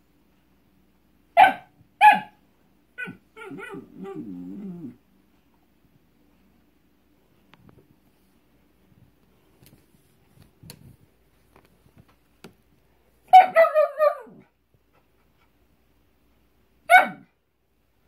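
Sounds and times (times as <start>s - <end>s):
dog whining and yipping: 3.0s - 5.0s.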